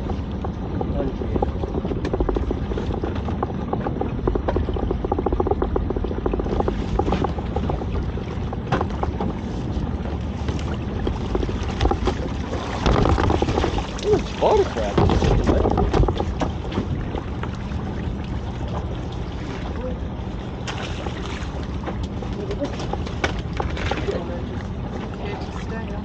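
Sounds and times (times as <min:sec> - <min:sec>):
wet pot knocking on boat side: 0:00.0 - 0:09.4
wind on microphone: 0:00.0 - 0:18.6
boat engine running: 0:00.0 - 0:26.0.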